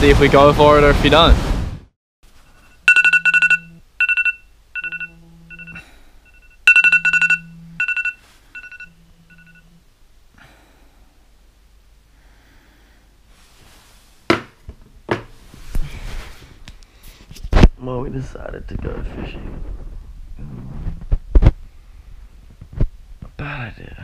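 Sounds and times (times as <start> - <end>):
phone alarm two-tone beeps: 2.6 - 9.7.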